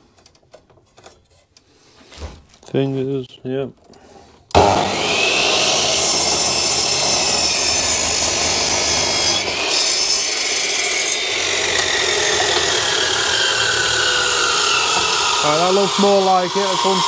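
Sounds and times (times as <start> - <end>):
power tool cutting wood: 4.5 - 17.0.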